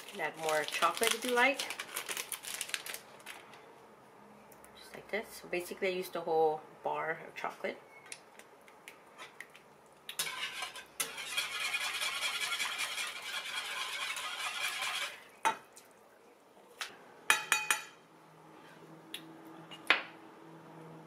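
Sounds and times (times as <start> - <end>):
whisk scraping a pan: 10.2 - 15.3.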